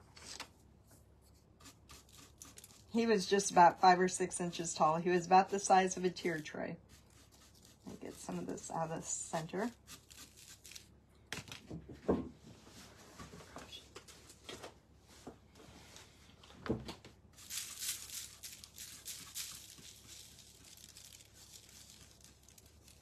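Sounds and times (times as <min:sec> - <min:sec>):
paintbrush scrubbing: 0:01.2 - 0:10.9, 0:17.4 - 0:23.0.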